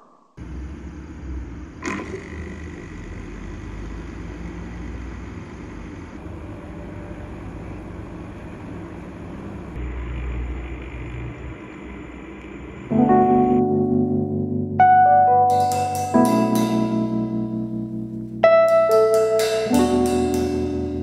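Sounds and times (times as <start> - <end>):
aquarium equipment hum and water: 0.4 - 12.9.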